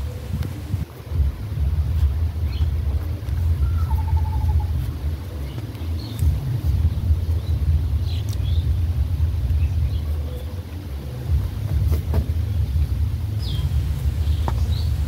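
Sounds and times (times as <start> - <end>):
loud low rumble: 6.1 - 10.3.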